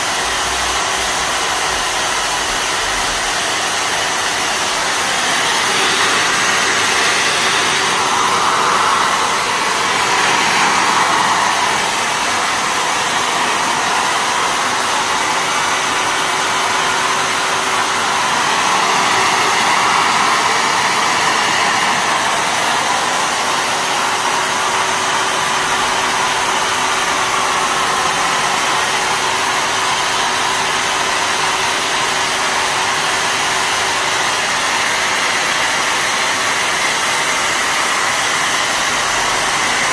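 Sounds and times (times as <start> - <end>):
fogger blower hissing spray: 0.0 - 39.9.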